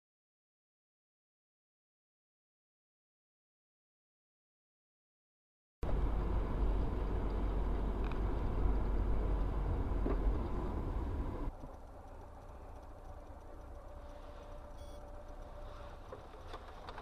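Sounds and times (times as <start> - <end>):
car driving rumble in cabin: 5.8 - 17.0.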